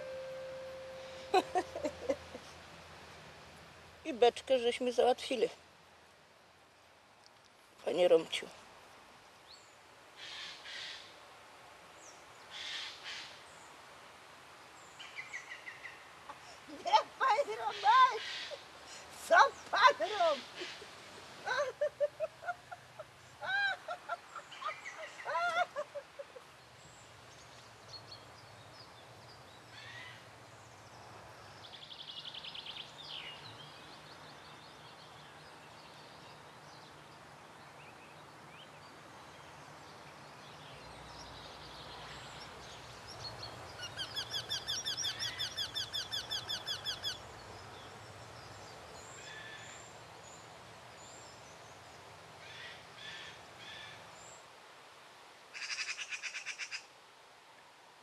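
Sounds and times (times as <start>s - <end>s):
low steady hum: 0.0s - 4.6s
birds chirping and trilling: 31.6s - 50.4s.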